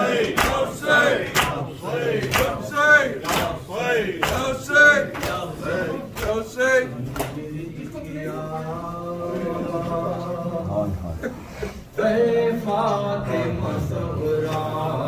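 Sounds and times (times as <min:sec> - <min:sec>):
rhythmic chest slaps: 0:00.0 - 0:07.6
men chanting a lament: 0:00.0 - 0:15.0.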